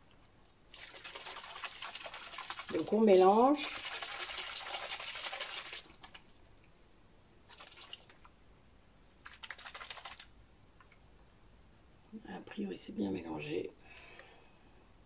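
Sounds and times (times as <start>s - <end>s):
spray bottle rattling slosh: 0.4s - 6.4s, 9.1s - 10.3s.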